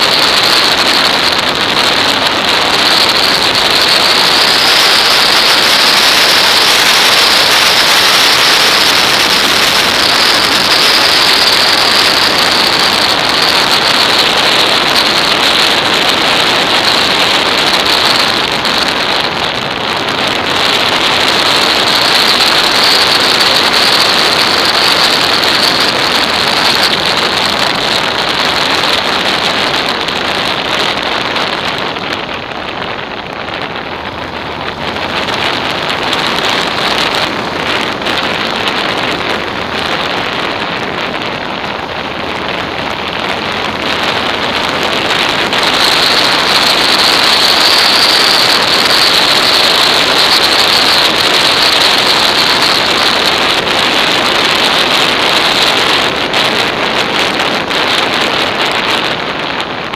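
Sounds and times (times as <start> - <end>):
wind rushing over microphone: 0.0 - 59.9.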